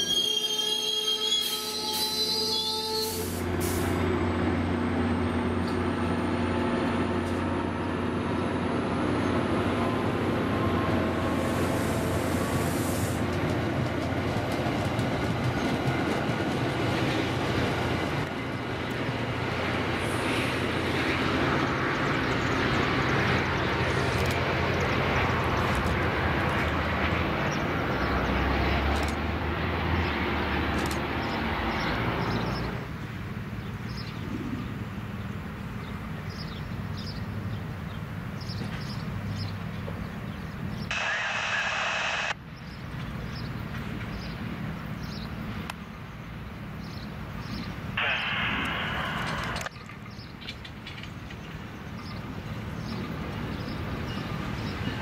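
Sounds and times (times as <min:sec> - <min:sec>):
train wheels rumbling on rails: 0:00.0 - 0:41.2, 0:42.8 - 0:55.0
diesel locomotive engine drone: 0:00.0 - 0:55.0
sharp clicks: 0:48.0 - 0:51.2.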